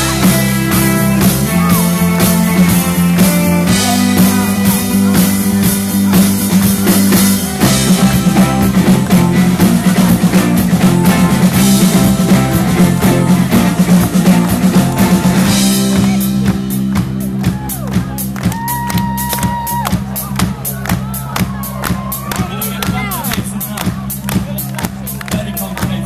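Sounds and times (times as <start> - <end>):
electric guitars: 0.0 - 20.0
bass guitar: 0.0 - 26.0
drum kit: 0.0 - 26.0.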